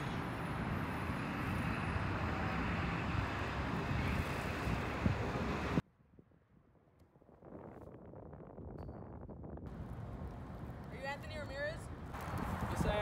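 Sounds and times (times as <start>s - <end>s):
wind buffeting microphone: 2.7s - 6.2s, 7.1s - 13.0s.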